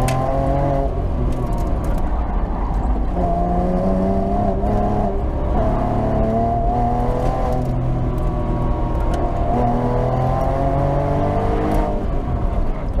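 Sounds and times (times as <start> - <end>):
sports car engine revving: 3.1 - 12.6.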